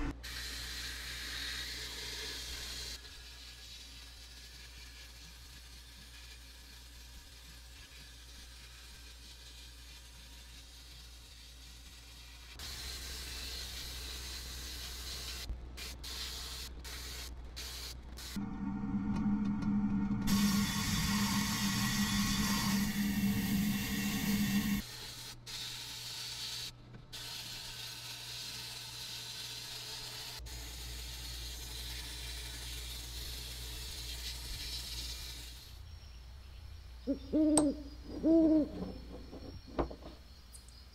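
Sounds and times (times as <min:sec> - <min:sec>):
sandblaster hissing: 0:09.3 - 0:18.4, 0:20.3 - 0:35.8
low hum: 0:18.2 - 0:24.8.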